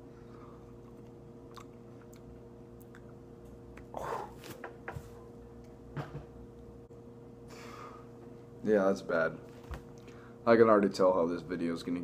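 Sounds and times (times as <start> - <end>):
person chewing: 0.4 - 4.3.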